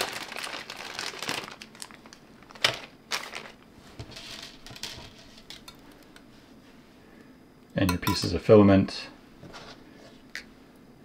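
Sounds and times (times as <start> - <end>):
plastic bag crinkling: 0.0 - 5.7.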